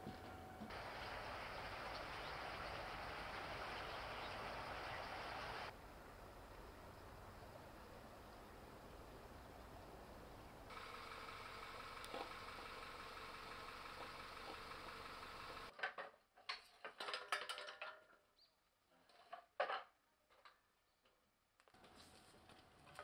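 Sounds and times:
engine-like hum: 0:00.0 - 0:15.7.

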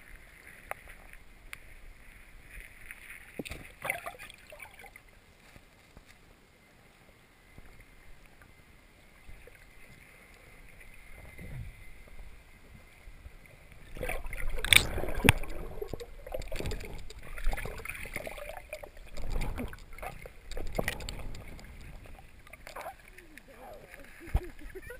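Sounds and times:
water sloshing and rumbling: 0:00.0 - 0:05.4, 0:09.0 - 0:24.9.

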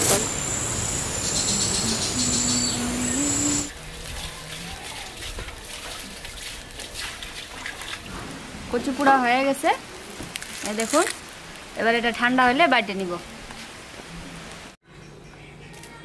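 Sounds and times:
high insect-like chirp: 0:00.0 - 0:03.7
wood fire hissing: 0:00.0 - 0:03.7
coals crackling: 0:08.4 - 0:14.7.

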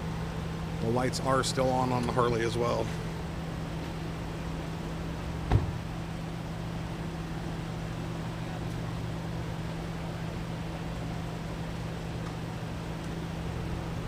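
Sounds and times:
low mechanical hum: 0:00.0 - 0:14.0.

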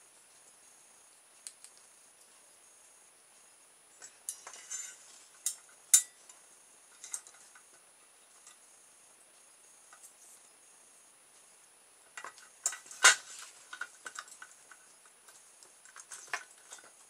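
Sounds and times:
light clicks and taps: 0:01.4 - 0:02.3.

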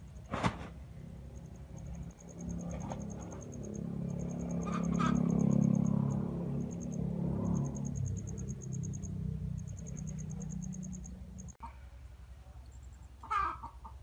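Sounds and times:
low motor drone: 0:00.9 - 0:11.6
high rapid chirps: 0:01.3 - 0:11.6.

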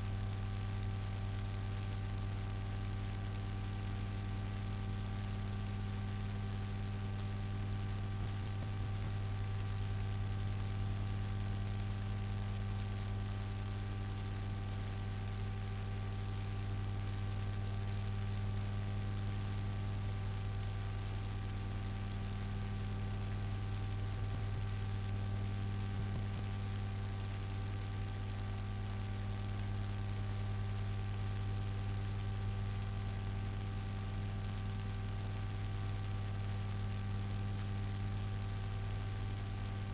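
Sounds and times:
electrical mains hum: 0:00.0 - 0:39.9.

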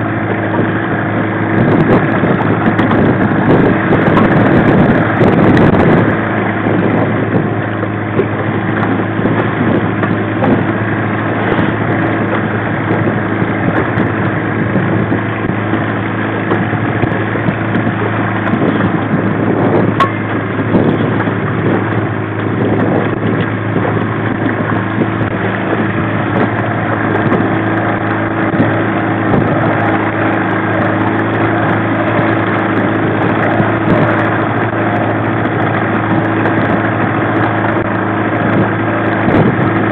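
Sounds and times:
outboard motor droning: 0:00.0 - 0:39.9.

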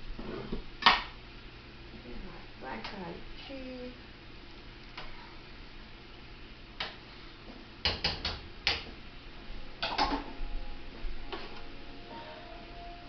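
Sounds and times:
utensils and dishes clattering: 0:09.8 - 0:10.3.

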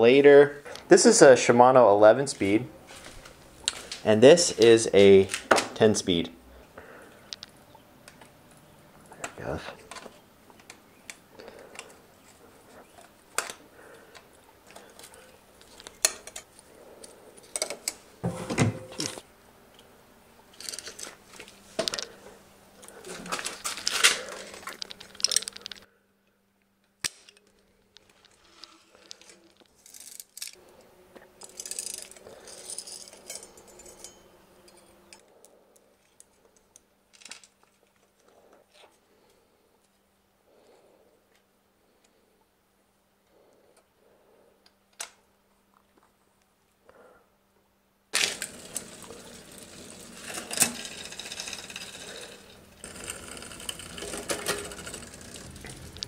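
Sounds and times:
small metal parts clicking: 0:20.5 - 0:21.2, 0:23.2 - 0:25.9, 0:27.0 - 0:30.6, 0:31.4 - 0:35.2, 0:48.2 - 0:56.0
scraping and rattling handling: 0:22.8 - 0:25.9, 0:48.2 - 0:56.0.

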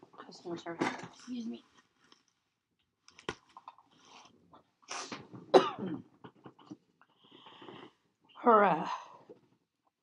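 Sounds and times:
woman coughing: 0:05.5 - 0:06.2.

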